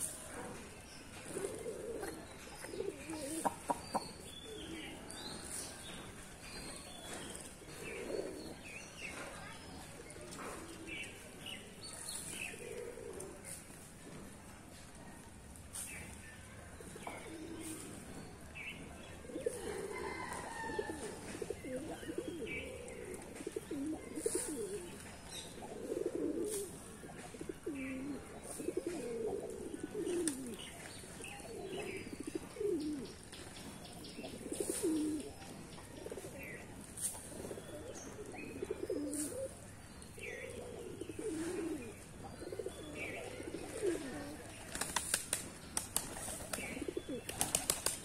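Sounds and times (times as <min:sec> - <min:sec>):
pigeons cooing: 0:01.1 - 0:05.4, 0:07.1 - 0:08.7, 0:12.3 - 0:13.6, 0:17.2 - 0:18.2, 0:19.1 - 0:45.1, 0:45.8 - 0:48.0.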